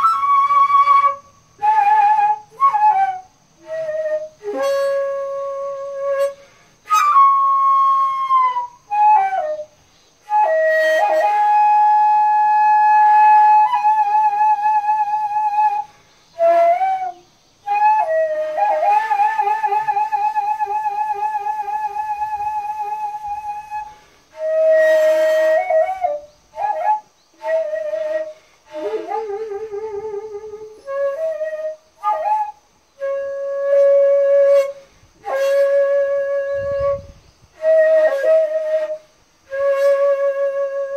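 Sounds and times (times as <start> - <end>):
bamboo flute playing: 0.0 - 40.9.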